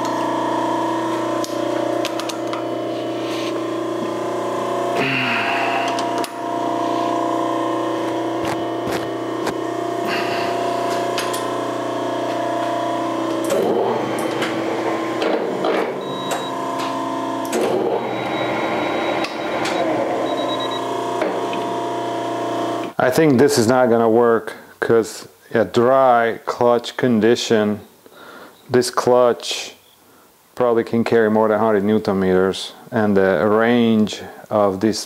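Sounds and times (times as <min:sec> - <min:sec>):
lathe whining: 0:00.0 - 0:23.0.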